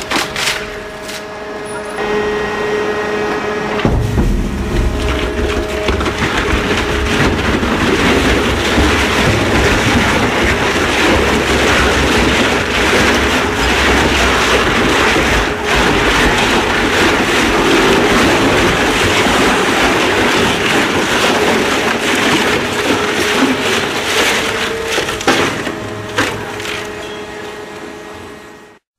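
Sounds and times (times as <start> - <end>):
drive motor hum: 0.8 - 28.7
shredder crushing rubber tyre: 3.7 - 28.0
sharp knock: 3.8 - 6.2.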